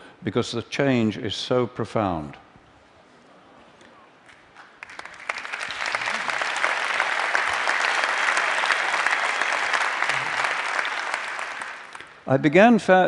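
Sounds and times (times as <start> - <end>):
audience applauding: 4.6 - 12.2.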